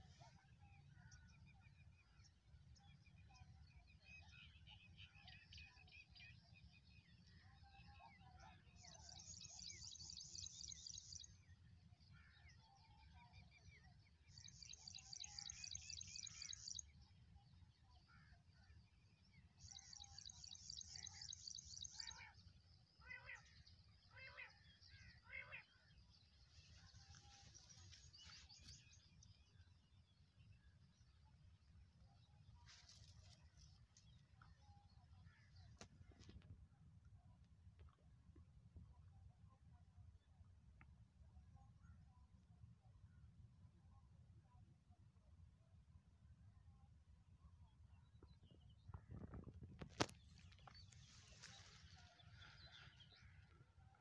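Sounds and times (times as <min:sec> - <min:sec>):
birds chirping: 0:12.2 - 0:36.6, 0:47.8 - 0:54.0.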